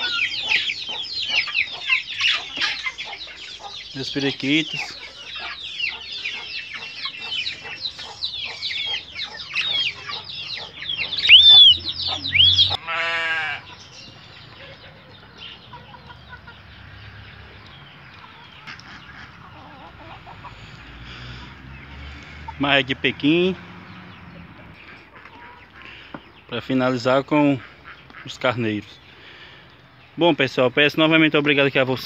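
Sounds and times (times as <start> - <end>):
budgerigars chattering: 0.0 - 12.8, 17.7 - 30.3
short wavering bird call: 11.1 - 12.8.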